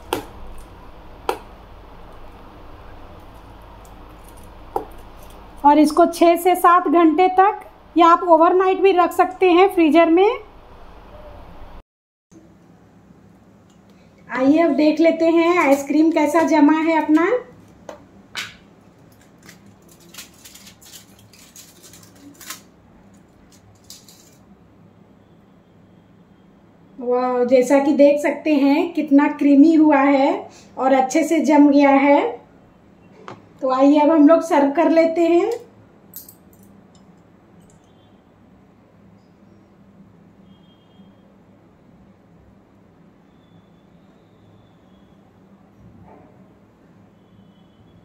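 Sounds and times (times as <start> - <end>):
aluminium foil crinkling: 19.0 - 24.5.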